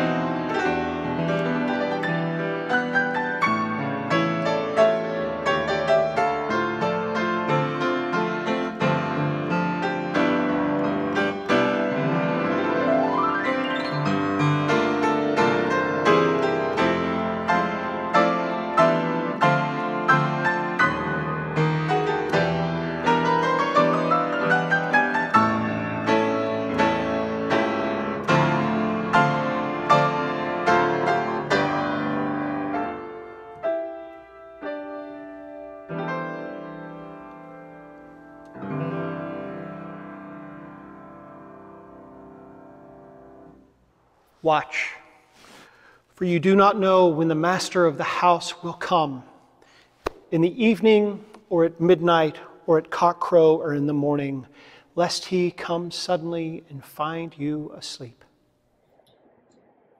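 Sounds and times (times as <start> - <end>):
solo grand piano: 0.0 - 44.2.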